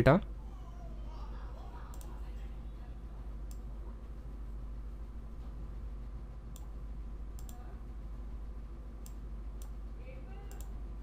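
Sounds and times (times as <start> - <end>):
low electrical hum: 0.0 - 11.0
computer mouse clicking: 1.9 - 2.1, 6.5 - 6.7, 7.3 - 7.6, 10.5 - 10.8.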